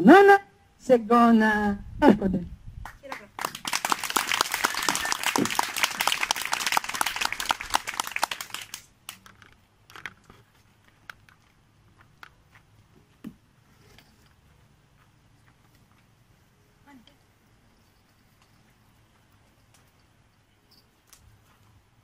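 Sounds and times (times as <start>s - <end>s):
scattered single claps: 2.8s - 9.4s
audience applauding: 3.0s - 9.2s.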